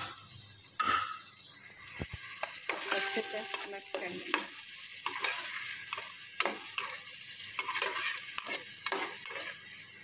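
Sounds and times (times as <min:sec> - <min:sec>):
vegetables sizzling in a pan: 0:00.0 - 0:10.0
metal spatula scraping a pan: 0:02.2 - 0:10.0.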